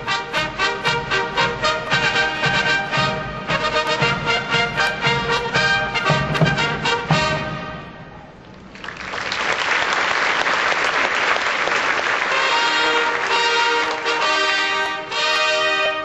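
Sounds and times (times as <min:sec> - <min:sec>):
bugle corps playing: 0:00.0 - 0:08.2, 0:11.8 - 0:16.0
audience applause: 0:08.6 - 0:14.6.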